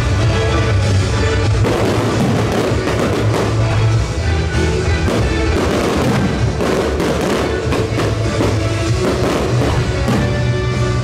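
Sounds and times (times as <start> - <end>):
loud music: 0.0 - 11.0
firework bursts and crackle: 0.9 - 11.0.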